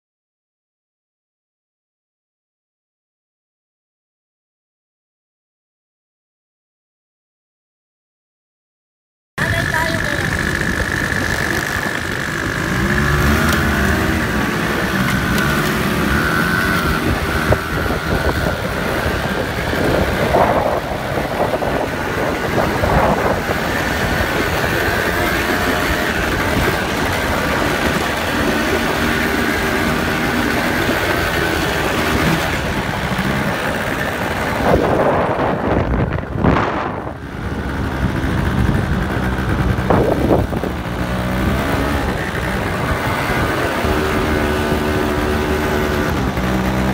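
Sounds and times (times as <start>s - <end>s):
quad bike engine revving: 9.4s - 46.9s
wind on microphone: 9.5s - 46.9s.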